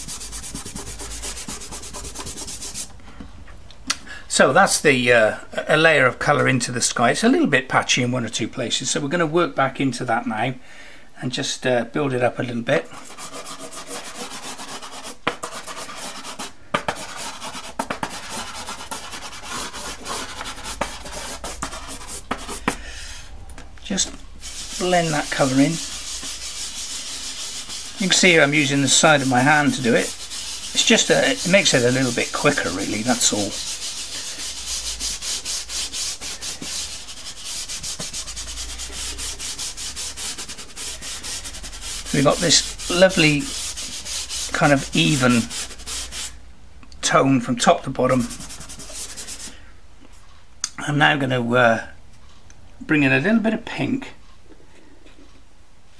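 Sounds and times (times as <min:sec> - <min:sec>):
pastel stick scratching on paper: 0:00.0 - 0:02.9, 0:12.9 - 0:22.8, 0:24.0 - 0:46.3, 0:48.2 - 0:49.5.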